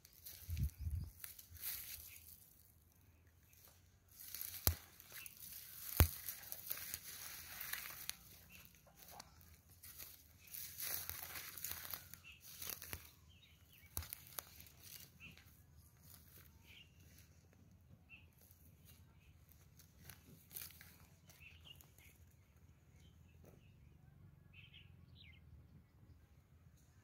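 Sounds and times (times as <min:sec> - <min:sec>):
footsteps through dry grass: 0:00.0 - 0:22.8.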